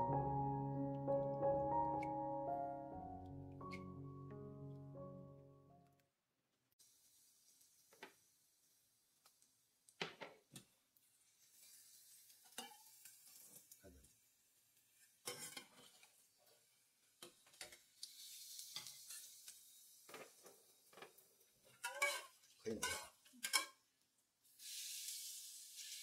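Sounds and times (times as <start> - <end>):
hot oil sizzling in a saucepan: 6.8 - 26.0.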